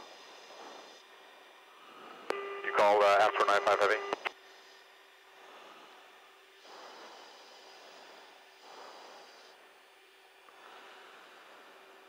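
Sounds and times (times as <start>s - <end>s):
breathing into mask microphone: 0.0s - 2.4s, 4.4s - 9.8s, 10.5s - 12.0s
thin hum: 1.8s - 4.3s.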